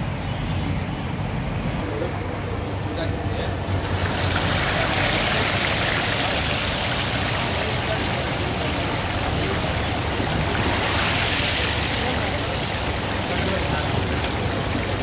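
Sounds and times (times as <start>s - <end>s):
oil sizzling and bubbling: 3.5s - 15.0s.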